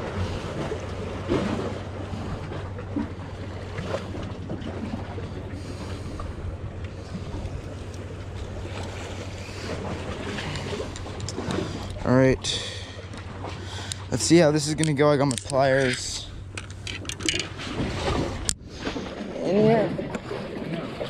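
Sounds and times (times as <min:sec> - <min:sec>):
low engine-like drone: 0:00.0 - 0:21.0
fishing tackle clicks: 0:10.5 - 0:12.0, 0:14.7 - 0:17.6.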